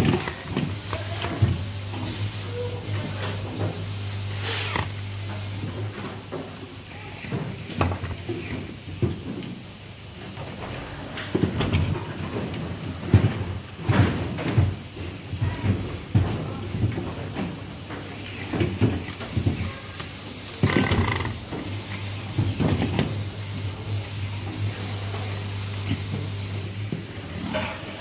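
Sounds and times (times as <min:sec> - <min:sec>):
electric screwdriver running: 0:04.3 - 0:05.0, 0:20.6 - 0:22.0.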